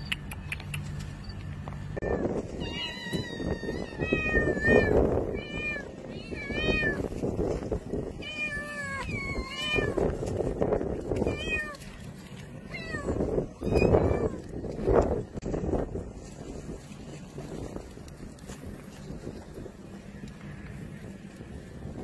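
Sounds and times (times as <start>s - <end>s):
cats meowing: 2.0s - 7.2s, 8.1s - 14.9s.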